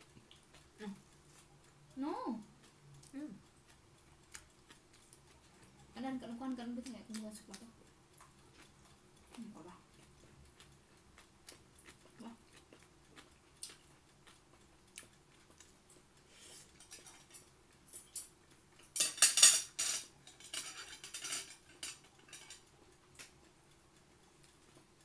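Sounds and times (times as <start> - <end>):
plate clatter: 19.0 - 22.6.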